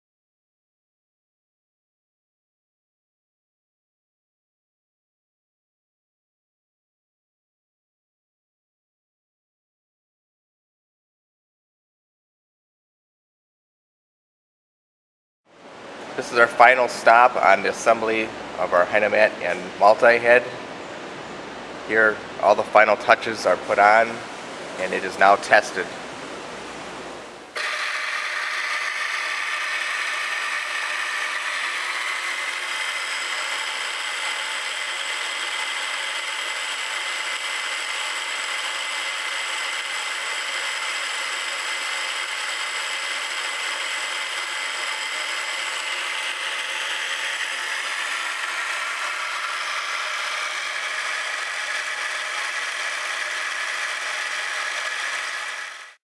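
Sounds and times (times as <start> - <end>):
drilling head motor whine: 27.4 - 56.0.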